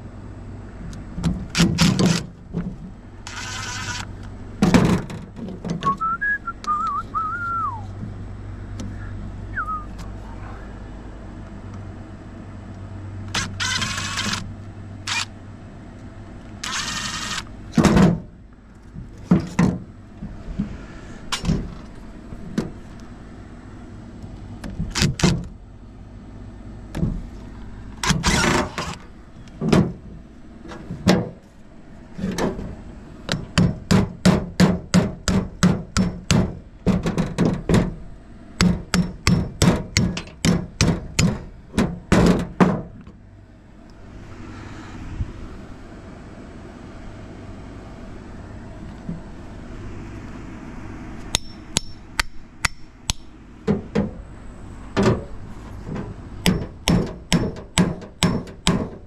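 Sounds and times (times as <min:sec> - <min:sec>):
low steady hum: 0:00.0 - 0:59.0
metal parts knocking and thudding: 0:01.2 - 0:03.4, 0:04.6 - 0:06.0, 0:17.7 - 0:18.4, 0:19.0 - 0:20.7, 0:21.3 - 0:22.8, 0:28.0 - 0:31.5, 0:32.2 - 0:43.2, 0:53.6 - 0:54.2, 0:54.9 - 0:59.0.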